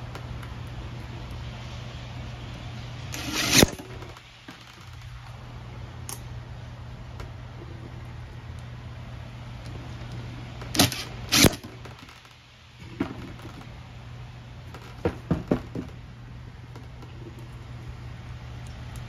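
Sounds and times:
power driver driving a screw: 0:03.2 - 0:03.8, 0:10.8 - 0:11.7.

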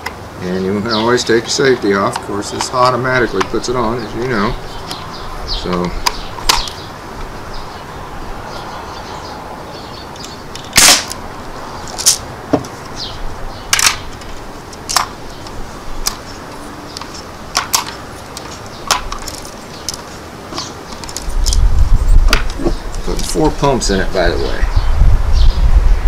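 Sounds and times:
air rifle firing crack: 0:10.7 - 0:11.2.

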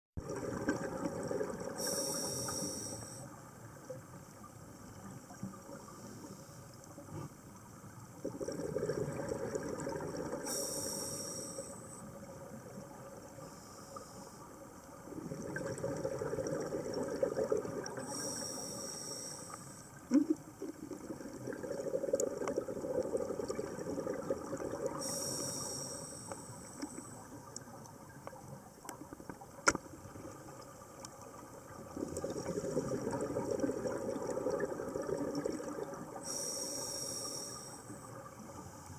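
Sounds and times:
exhaled bubbles rushing: 0:00.2 - 0:01.8, 0:08.2 - 0:10.5, 0:15.1 - 0:18.2, 0:20.1 - 0:25.1, 0:31.7 - 0:36.2.

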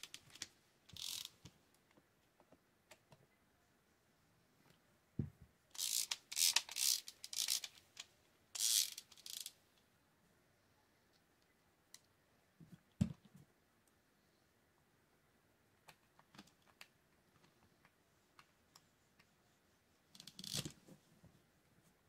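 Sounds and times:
fishing reel rasping bursts: 0:01.0 - 0:01.3, 0:05.8 - 0:07.8, 0:08.6 - 0:09.5
soft knocks on table: 0:05.2 - 0:05.4.

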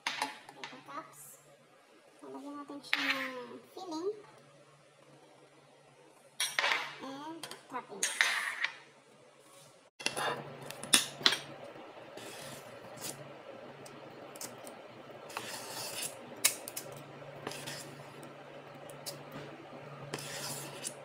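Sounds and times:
low steady hum: 0:10.0 - 0:21.0.

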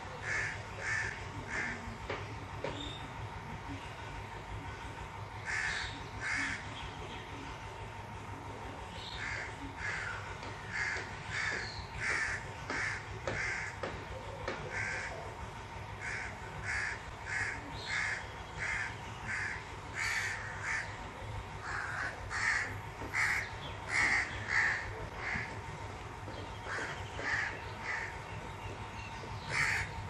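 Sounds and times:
bird calling: 0:21.6 - 0:25.6, 0:26.3 - 0:30.0.

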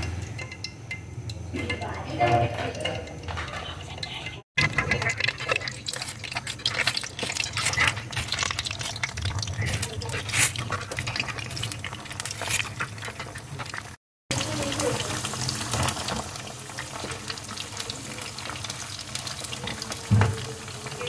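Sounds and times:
chicken sizzling in hot oil: 0:04.3 - 0:21.0.

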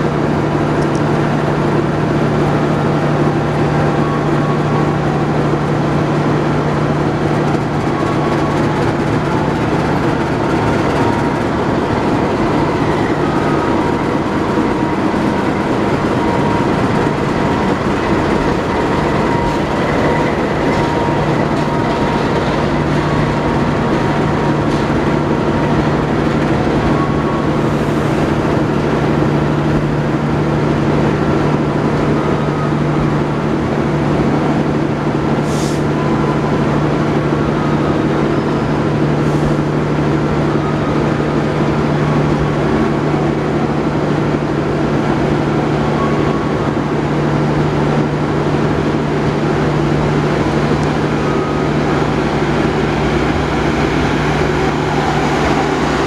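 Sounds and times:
diesel locomotive engine humming: 0:00.0 - 0:56.0
train wheels clattering on track: 0:05.6 - 0:32.9.

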